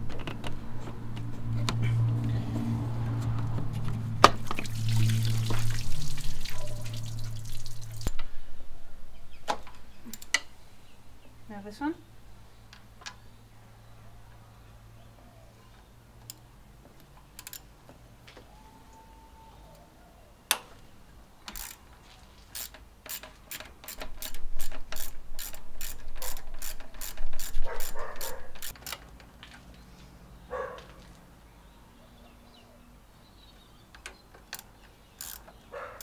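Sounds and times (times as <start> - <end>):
socket ratchet clicking: 22.6 - 29.0, 34.5 - 35.6.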